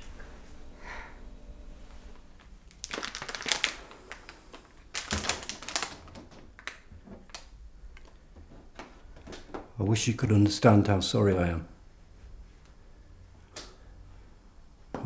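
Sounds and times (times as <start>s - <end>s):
flower wrapping crinkling: 2.4s - 9.6s.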